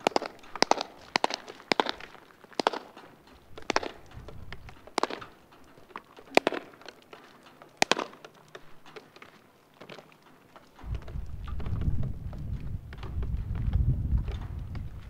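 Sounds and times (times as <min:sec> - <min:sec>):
sharp impact cracks: 0:00.0 - 0:09.1.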